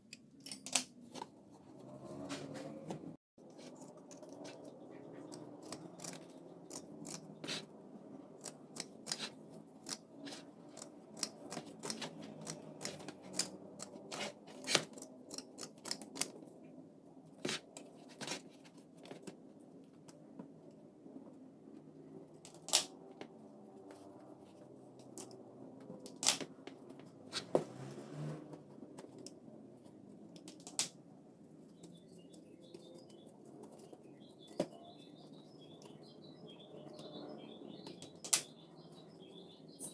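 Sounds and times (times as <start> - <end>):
scissors snipping cloth: 8.4 - 16.3.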